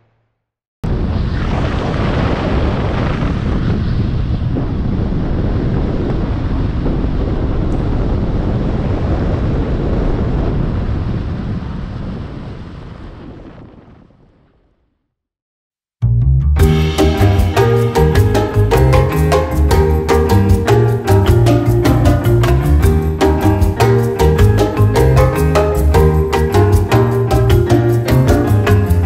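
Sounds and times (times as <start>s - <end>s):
wind buffeting microphone: 1.0s - 14.4s.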